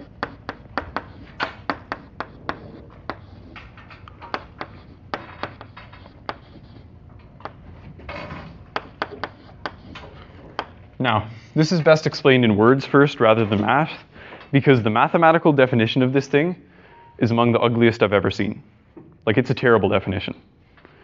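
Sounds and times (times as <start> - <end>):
chalk scratching on blackboard: 0.0 - 10.8
chalk tapping on blackboard: 0.0 - 10.8.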